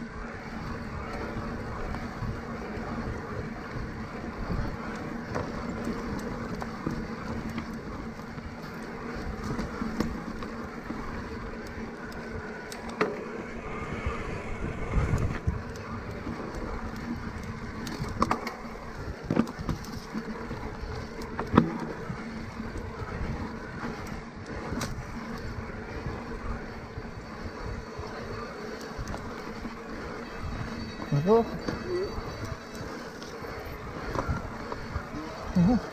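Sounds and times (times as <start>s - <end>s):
bike knocking and rattling: 0.0s - 35.9s
electric bike motor hum: 0.0s - 35.9s
wind noise on microphone: 13.3s - 35.9s.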